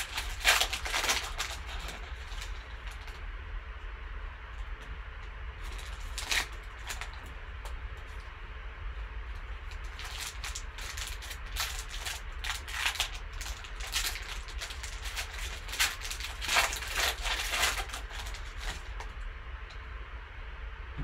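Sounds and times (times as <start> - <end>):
foil wrapper crinkling: 0.0 - 3.2, 5.6 - 8.3, 9.3 - 19.2.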